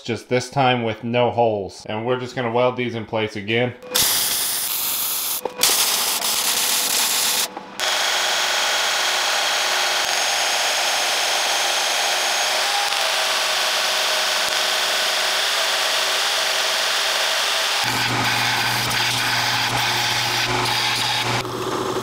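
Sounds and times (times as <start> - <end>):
welding crackle: 4.0 - 8.2, 10.0 - 15.4, 17.7 - 22.0
belt sander grinding metal: 4.0 - 22.0.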